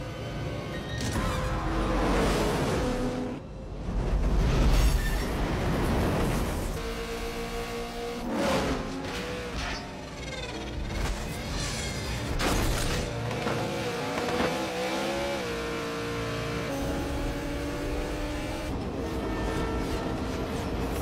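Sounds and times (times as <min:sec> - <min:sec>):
race car engines revving: 0:06.7 - 0:21.0.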